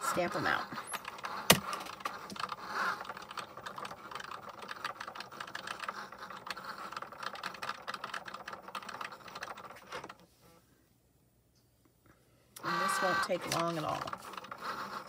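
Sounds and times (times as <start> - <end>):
fast small clicks and ticks: 0.8 - 10.2, 13.5 - 15.0.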